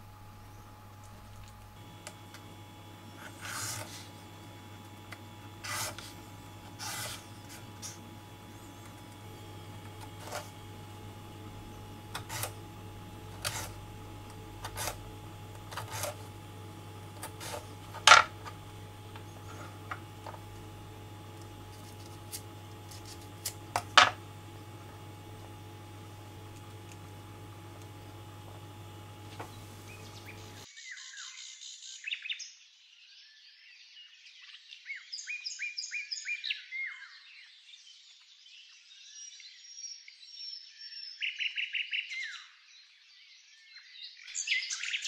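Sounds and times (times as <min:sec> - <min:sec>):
faint low hum: 0:00.0 - 0:30.7.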